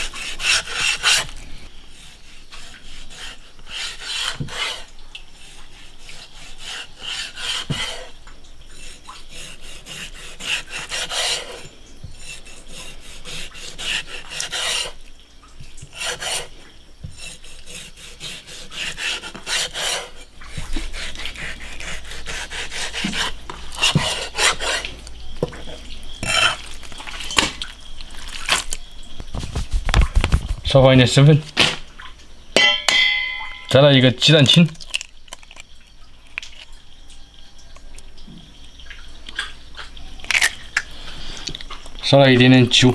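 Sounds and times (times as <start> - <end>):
knife slicing on wooden board: 15.9 - 24.8, 26.2 - 26.6.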